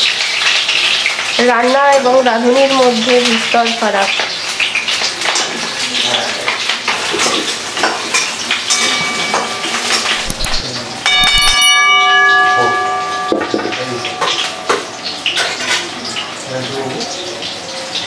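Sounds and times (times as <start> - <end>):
potatoes frying: 0.0 - 18.0
bright bell chime: 8.7 - 15.6.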